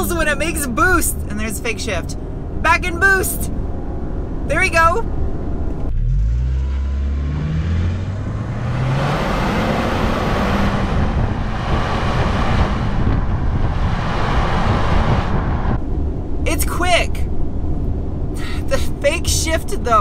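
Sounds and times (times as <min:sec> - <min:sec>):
road and wind noise: 0:00.0 - 0:20.0
car engine accelerating: 0:03.4 - 0:16.2.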